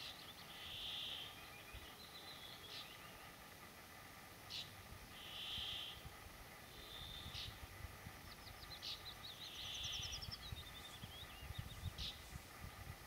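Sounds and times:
songbird singing: 0.0s - 13.0s
wind on microphone: 9.9s - 13.0s.

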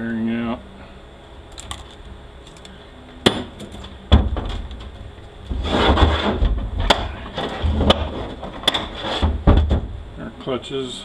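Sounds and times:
light clicks of metal parts: 1.5s - 2.8s
metal housing scraping and rubbing: 5.5s - 9.5s.

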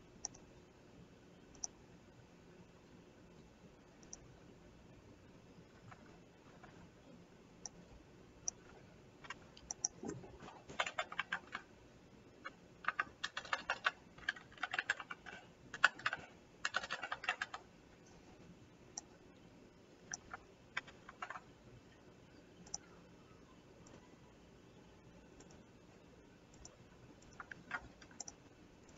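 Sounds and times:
typing on computer keyboard: 5.7s - 6.8s, 8.4s - 11.7s, 12.4s - 17.7s, 20.1s - 21.5s, 26.6s - 28.9s.

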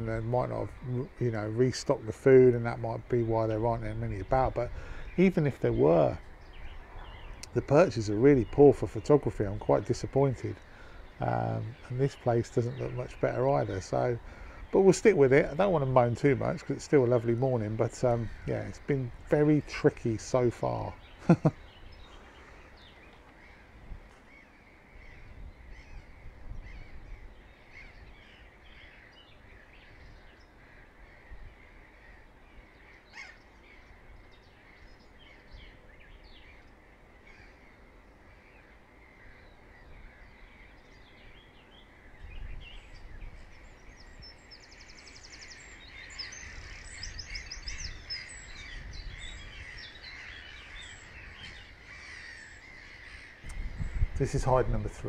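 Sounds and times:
distant birds calling: 0.0s - 55.0s
wind rumble on microphone: 22.8s - 32.8s, 39.7s - 51.9s, 53.4s - 55.0s.

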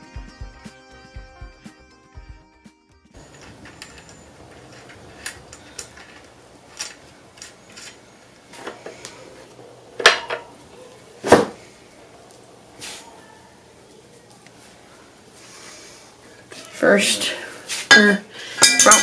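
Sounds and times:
light metal clinks: 3.2s - 9.2s, 18.6s - 19.0s.

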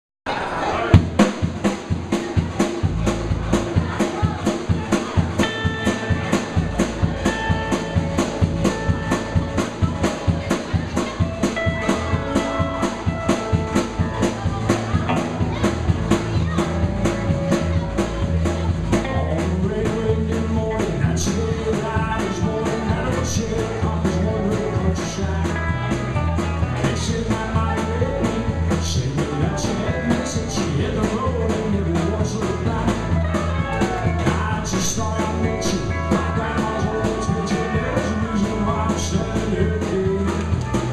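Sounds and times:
guitars and bass: 0.4s - 40.9s
drum kit beat: 0.9s - 40.9s
pedal steel guitar: 5.4s - 19.8s
man singing: 18.9s - 40.9s.

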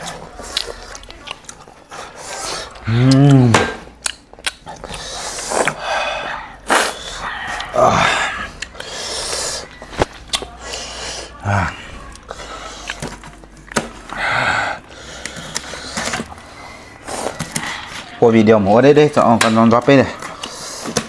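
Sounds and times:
breathy hisses and sniffs: 1.9s - 2.8s, 4.8s - 9.8s, 10.5s - 13.0s.

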